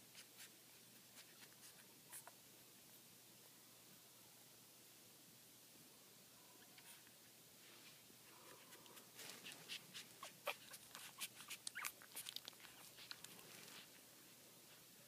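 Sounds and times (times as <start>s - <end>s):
puppies nursing clicks and smacks: 0.0s - 2.4s, 8.5s - 13.9s
puppy high squeaks: 9.4s - 13.1s.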